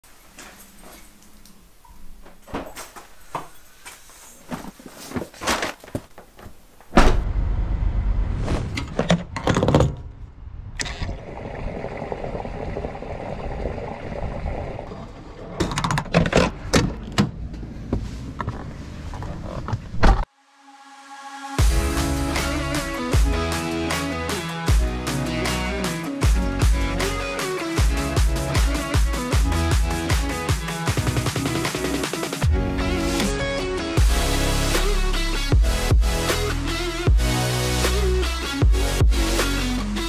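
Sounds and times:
doors thudding: 6.9s - 7.2s
knocks and clunks: 8.8s - 10.2s.

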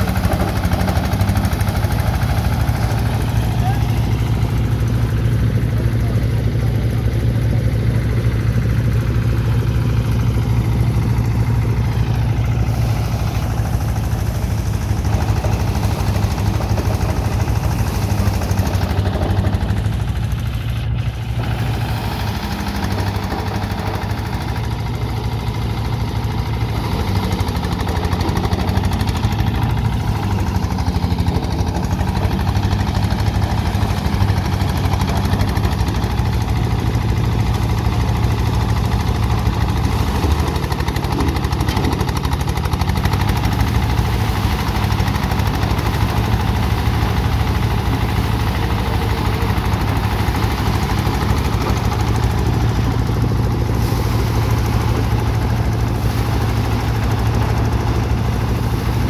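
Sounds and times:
thresher engine chugging: 0.0s - 59.0s
threshing drum threshing straw: 12.1s - 19.5s, 21.1s - 24.5s, 42.5s - 59.0s.

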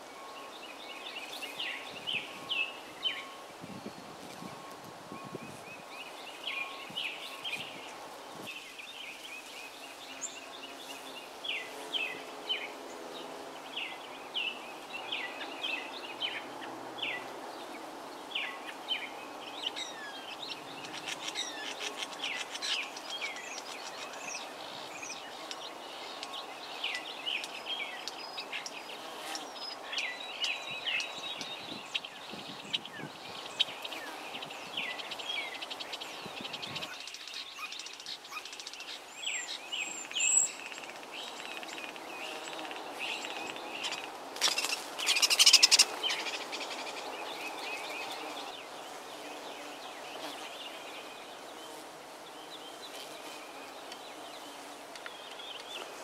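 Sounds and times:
bird chirps and twitters: 18.4s - 48.1s.

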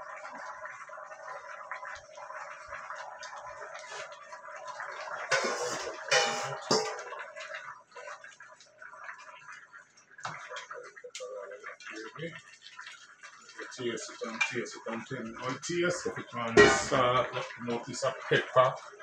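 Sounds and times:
stew bubbling in a pan: 0.0s - 19.0s
peppers splashing into pan: 5.1s - 7.7s, 16.5s - 17.6s.

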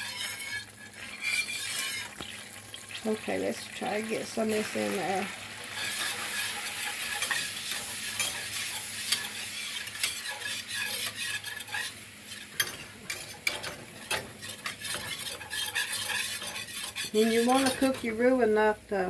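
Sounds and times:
whisk scraping a pan: 0.0s - 2.4s, 4.4s - 18.3s
frying hiss: 0.0s - 19.0s.

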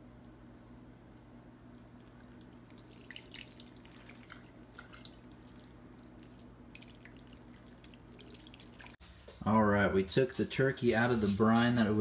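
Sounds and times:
steady low hum: 0.0s - 12.0s
liquid splashing and dripping: 2.0s - 9.0s.

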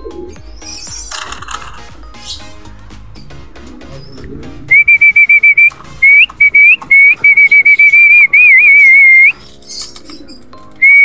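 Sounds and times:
person whistling: 4.0s - 9.4s.

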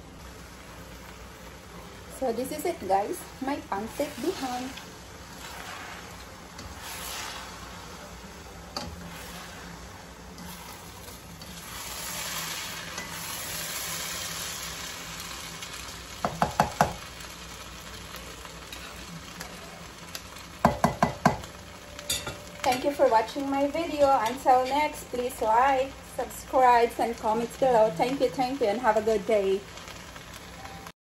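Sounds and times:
noodles sizzling in a hot pan: 0.0s - 31.0s
spatula stirring noodles in pan: 0.2s - 18.0s.

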